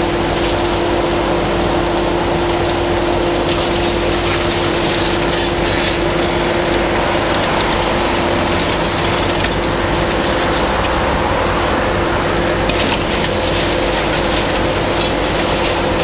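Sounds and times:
excavator engine running: 0.0 - 16.0
hum-like tone: 0.0 - 16.0.

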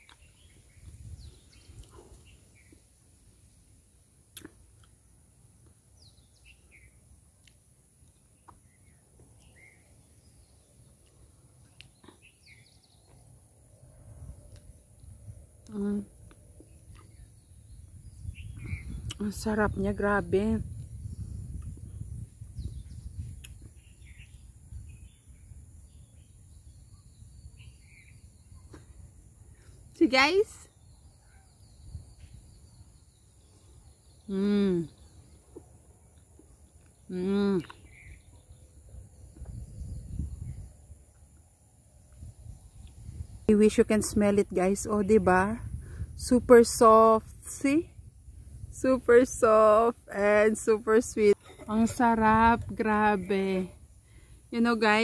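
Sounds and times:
faint bird chirps: 8.2 - 41.3.

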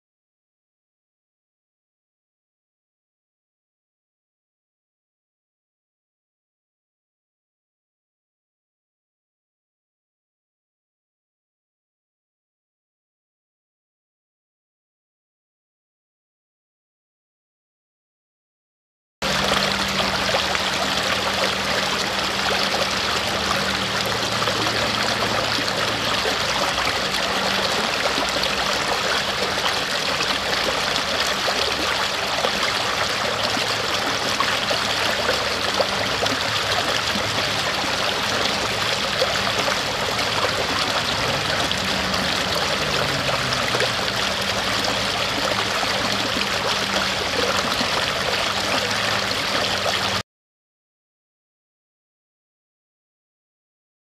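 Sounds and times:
stream running over rocks: 19.2 - 50.2.

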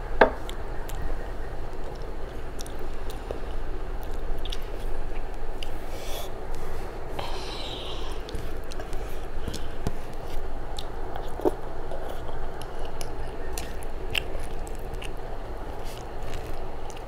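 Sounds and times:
person chewing food: 0.0 - 17.0
lip and tongue clicks: 0.4 - 5.8, 9.5 - 17.0.

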